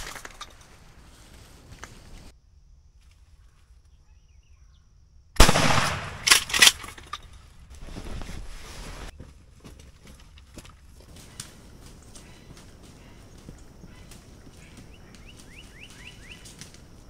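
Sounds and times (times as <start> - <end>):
shotgun shot: 5.4 - 6.8
rustling: 6.1 - 17.0.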